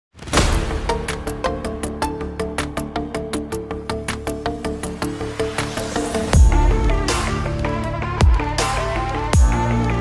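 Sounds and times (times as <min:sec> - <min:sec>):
fast electronic beat music: 0:06.1 - 0:10.0.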